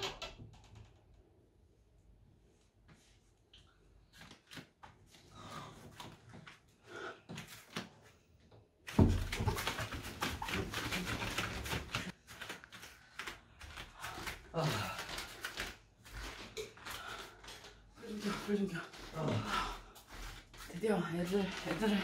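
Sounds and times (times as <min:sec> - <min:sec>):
rapid shuffling and scuffing: 0:08.9 - 0:22.0
soft footsteps: 0:08.9 - 0:22.0.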